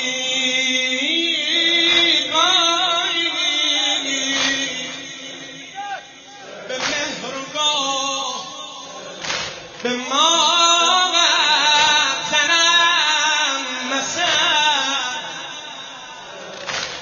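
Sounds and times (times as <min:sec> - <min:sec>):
man singing a mourning lament: 0:00.0 - 0:16.4
sharp smack: 0:09.2 - 0:09.6, 0:16.6 - 0:17.0.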